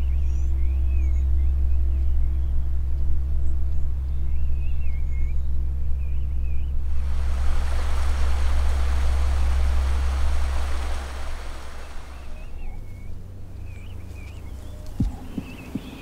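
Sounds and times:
deep low hum: 0.0s - 15.5s
stream water rushing over rocks: 7.0s - 12.7s.

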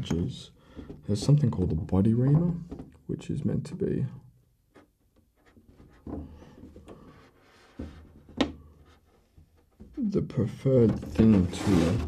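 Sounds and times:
plastic shell bumps: 5.6s - 10.0s
knife scratching plastic: 11.1s - 12.0s.

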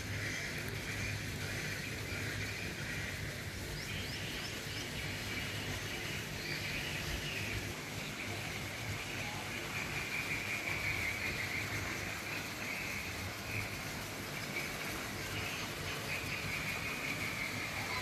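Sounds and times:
steady high hiss: 0.0s - 18.0s.

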